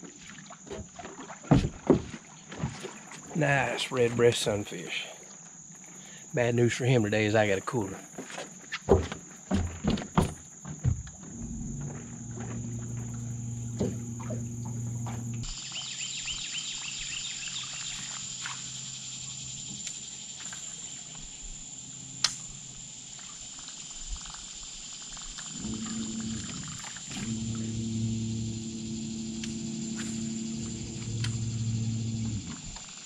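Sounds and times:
high-pitched insect drone: 10.2s - 33.0s
low steady hum: 11.0s - 15.6s, 25.5s - 32.8s
sharp click: 22.2s - 22.4s
rapid chirping: 23.6s - 33.0s.

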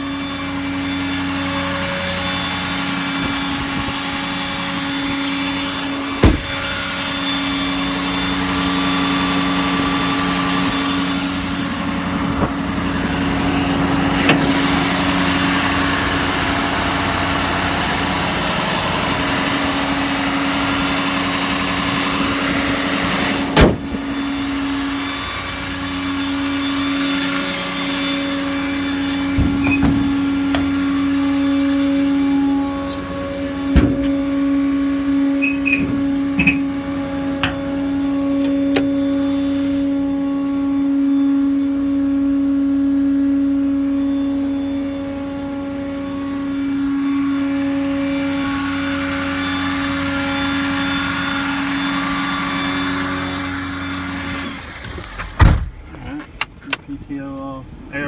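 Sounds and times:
diesel engine idling: 0.0s - 58.0s
sharp knocks: 6.2s - 6.5s.

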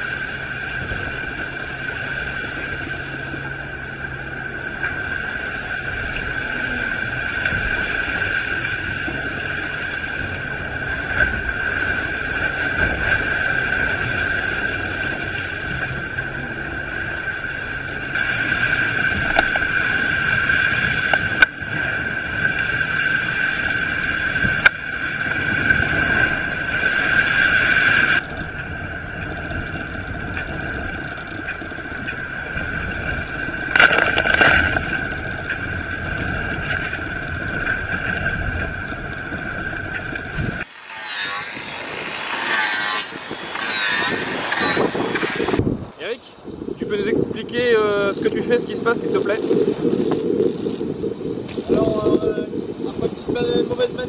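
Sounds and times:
rushing water: 0.0s - 47.1s
wind noise: 0.0s - 54.0s
steady high whine: 37.5s - 45.6s.

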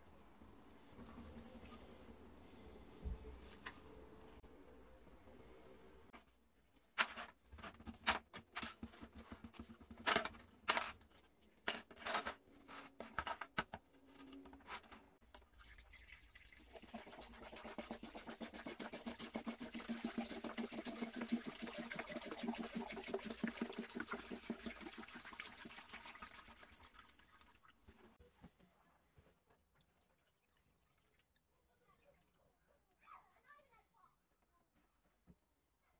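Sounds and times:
metal parts clicking into plastic tub: 7.0s - 13.8s
liquid pouring from a jug: 15.2s - 28.2s.

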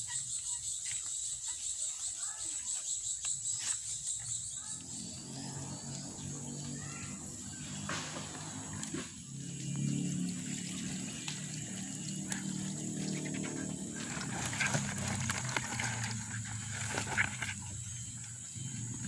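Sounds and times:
high insect drone: 0.0s - 19.0s
water sloshing and splashing: 10.0s - 17.8s.

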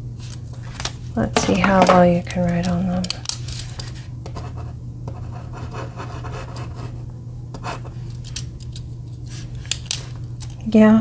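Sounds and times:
steady low hum: 0.0s - 11.0s
pen scratching on paper: 4.4s - 7.0s.

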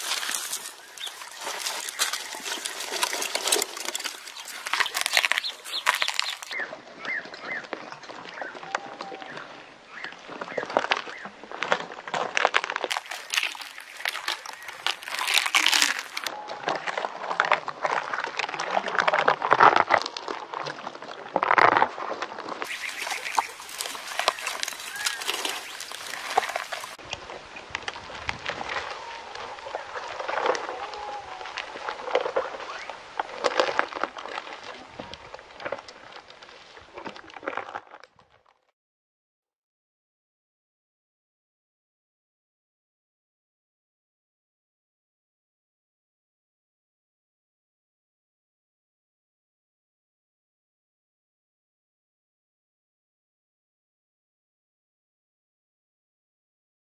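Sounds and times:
camel chewing cactus: 0.0s - 38.6s.

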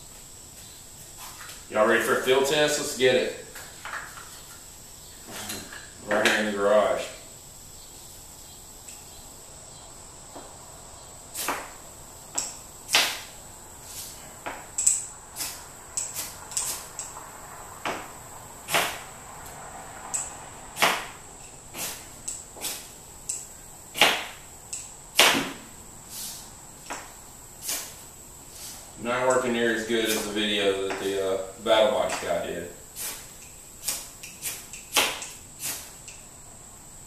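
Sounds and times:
striker scraping a fire-starter rod: 33.0s - 36.2s.

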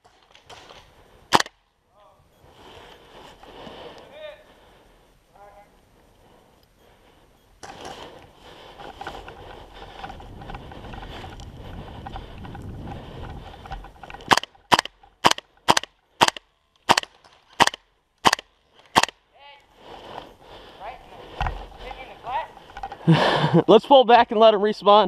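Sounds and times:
airsoft rifle firing single shots: 0.1s - 1.6s, 14.3s - 19.2s
rustling movement: 2.4s - 17.7s.

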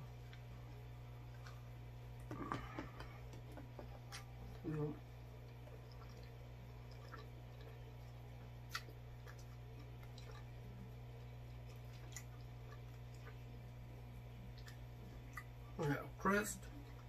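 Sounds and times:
wet chewing: 0.0s - 16.0s, 16.6s - 17.0s
steady low hum: 0.0s - 17.0s.

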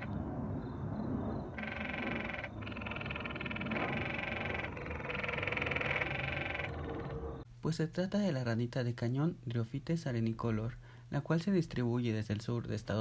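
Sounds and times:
tree frogs trilling: 0.0s - 7.5s.

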